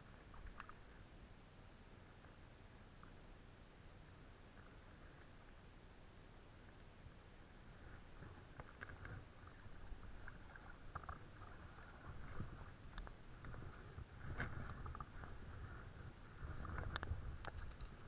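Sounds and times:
camera handling rumble: 12.4 - 15.6, 16.4 - 18.0.

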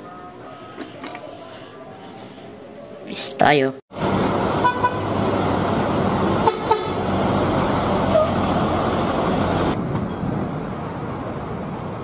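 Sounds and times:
bus engines humming: 3.9 - 12.0
road traffic noise: 3.9 - 12.0.

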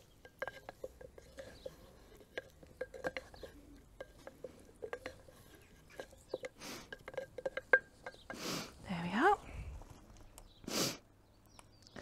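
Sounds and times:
wooden spoon knocking ceramic pot: 0.0 - 8.4.

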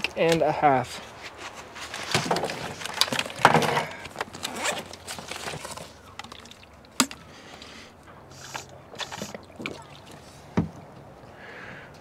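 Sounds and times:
bag rustling: 1.1 - 6.2
backpack dropped on plastic: 1.9 - 6.3
zipper pulled open: 4.3 - 5.0.

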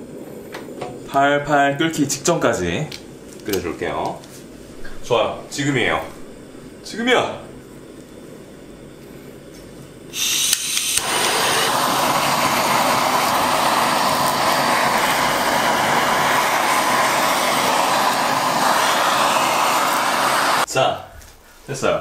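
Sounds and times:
blowtorch flame hissing: 0.0 - 20.7
blowtorch igniter clicks: 10.1 - 20.7.

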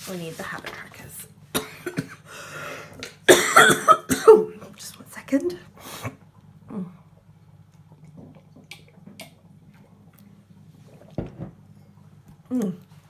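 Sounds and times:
person sipping and swallowing: 6.0 - 13.0.

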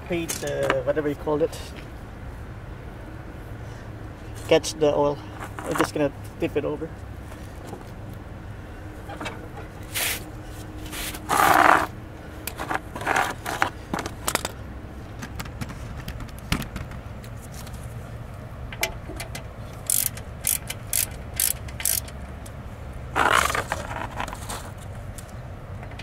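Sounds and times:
loud metal scraping: 9.1 - 11.9
socket wrench clicking: 18.7 - 22.6.

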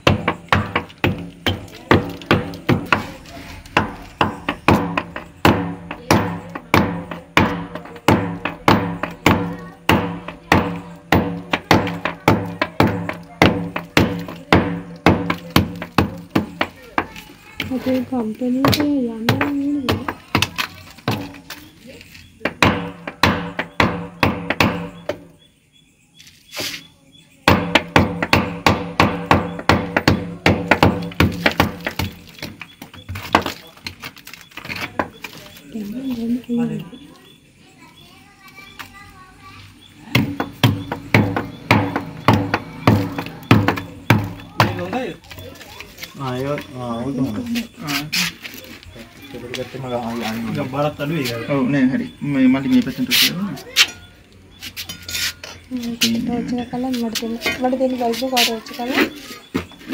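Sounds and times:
percussive beat: 0.0 - 17.1, 18.5 - 21.4, 22.4 - 25.3, 27.5 - 32.6, 40.1 - 45.2
hammer blows on masonry: 0.0 - 25.3, 27.4 - 34.0, 40.0 - 45.2.

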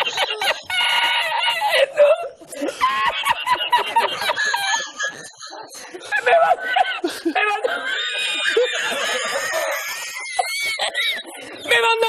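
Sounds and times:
man cackling laughter: 2.7 - 11.5.

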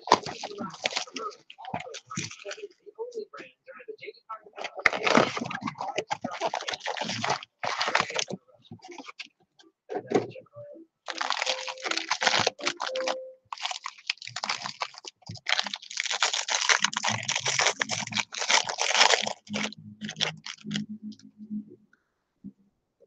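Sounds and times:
wrapper crinkling and tearing: 0.0 - 2.6, 4.6 - 9.3, 11.1 - 20.8.

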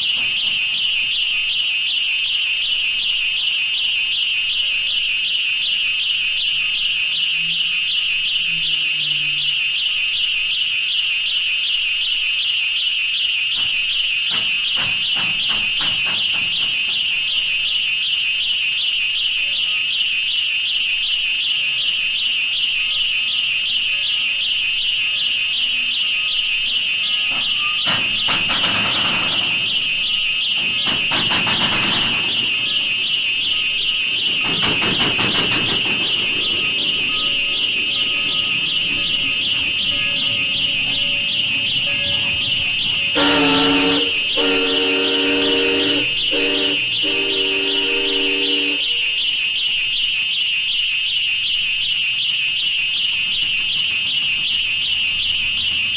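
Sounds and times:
high-pitched fluttering alarm tone: 0.0 - 55.9
rapid clicks: 27.8 - 43.2.

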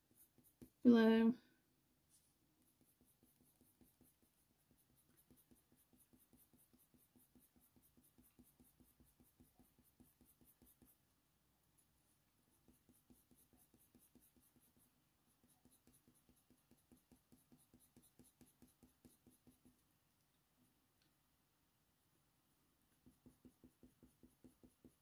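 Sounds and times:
pencil scratching on paper: 0.0 - 0.8, 2.1 - 11.1, 11.8 - 19.8, 22.9 - 25.0.

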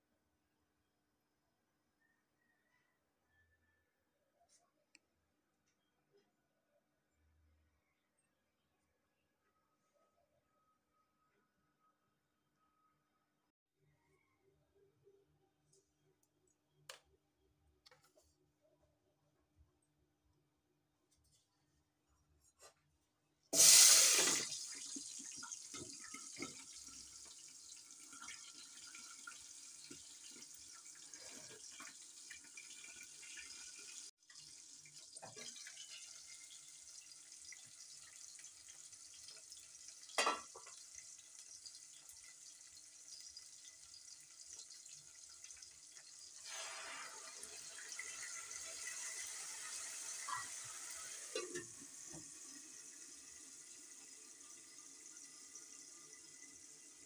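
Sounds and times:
onions sizzling in hot oil: 23.6 - 25.6.

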